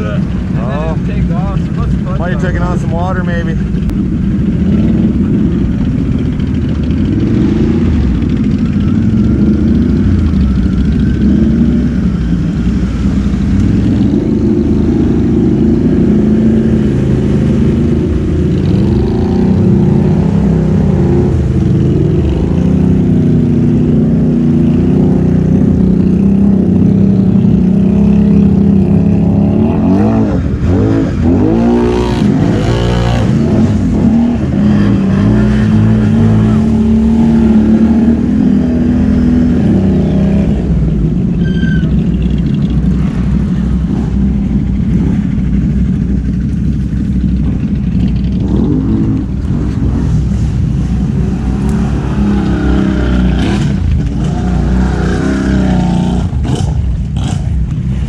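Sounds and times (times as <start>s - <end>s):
atv engines revving: 0.0s - 58.0s
water sloshing and spraying: 48.9s - 55.5s.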